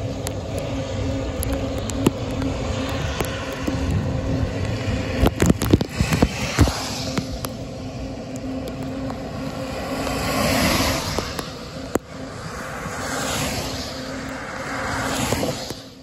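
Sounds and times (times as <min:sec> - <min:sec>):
tyres hissing on wet road: 0:00.0 - 0:16.0
wind rumble on microphone: 0:00.0 - 0:16.0.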